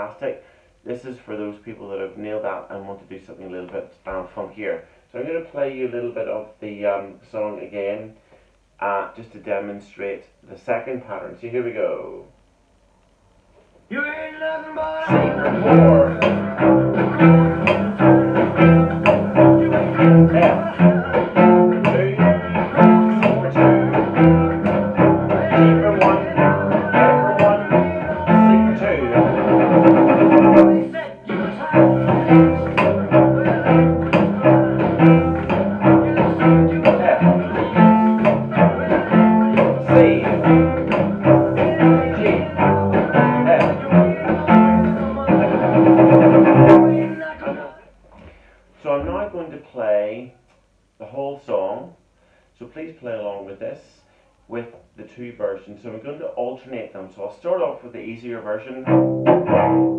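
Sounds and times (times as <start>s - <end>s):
cello playing blues chords: 14.8s - 47.5s, 58.7s - 59.9s
percussive bow chops on cello: 15.0s - 47.1s, 58.8s - 59.9s.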